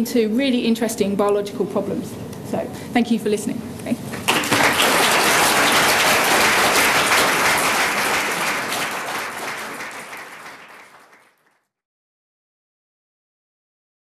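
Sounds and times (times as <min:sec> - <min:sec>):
audience applauding: 0:04.3 - 0:11.6.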